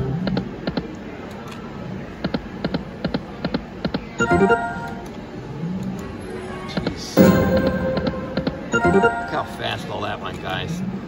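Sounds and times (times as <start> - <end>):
slot machine electronic ticks: 4.2 - 5.2, 7.2 - 9.9
stepped electronic chime: 7.2 - 9.8.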